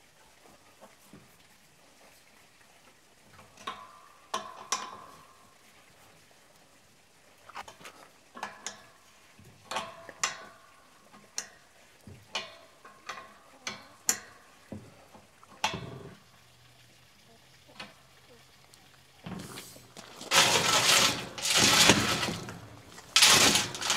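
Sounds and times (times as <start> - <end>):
heavy metal clank: 20.3 - 23.9.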